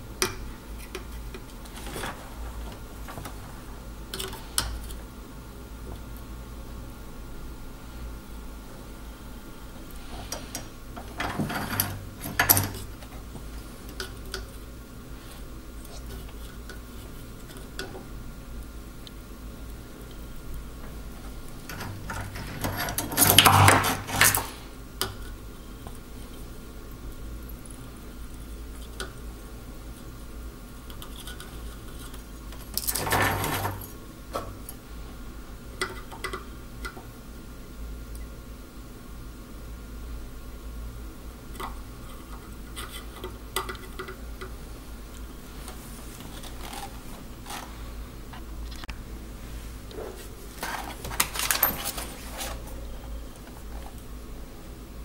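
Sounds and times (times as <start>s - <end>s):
noisy rustle: 0.0s - 6.7s, 44.7s - 54.1s
steady low hum: 0.0s - 55.0s.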